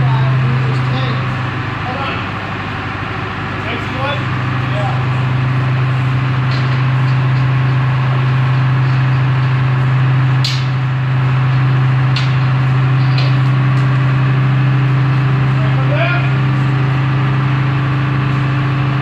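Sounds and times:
engine idling: 0.0 - 19.0
metal clicks and clanks: 12.1 - 13.9.

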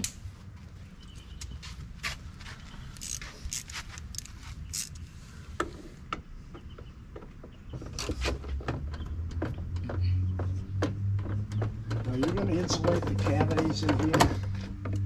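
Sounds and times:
metal tools tapping plastic panel: 10.8 - 15.0.

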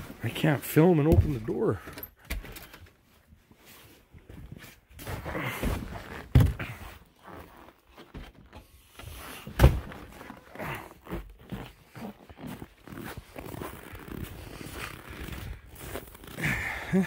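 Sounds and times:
boots on snowy wooden deck: 4.4 - 16.6.

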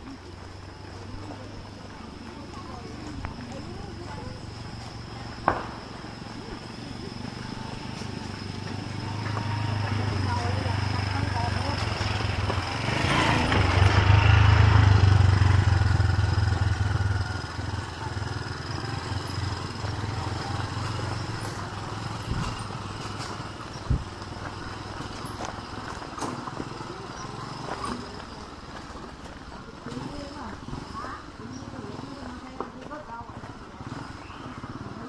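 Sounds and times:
vehicle engine passing: 0.0 - 29.1.

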